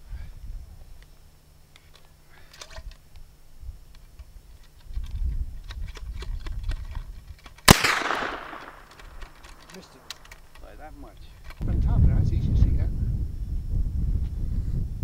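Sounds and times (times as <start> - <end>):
rifle shot with echo: 7.6 - 10.1.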